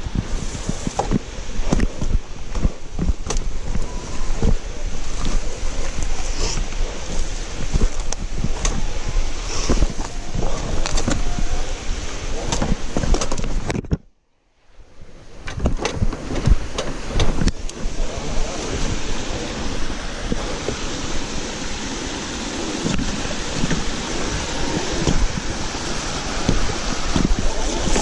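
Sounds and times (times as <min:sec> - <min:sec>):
wind buffeting microphone: 0:00.0 - 0:14.1, 0:14.8 - 0:28.0
bike clicks and rattles: 0:00.2 - 0:04.6, 0:05.2 - 0:08.9, 0:12.4 - 0:14.1, 0:15.4 - 0:17.8.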